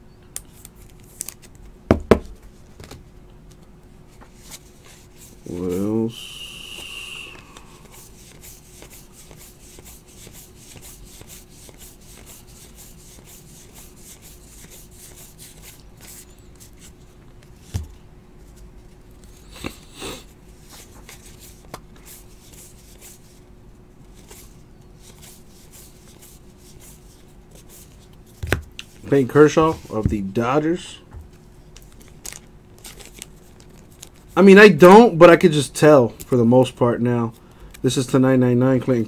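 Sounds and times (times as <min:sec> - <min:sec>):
faint steady hum: 0:00.0 - 0:39.0
cards sliding against each other: 0:07.3 - 0:17.8.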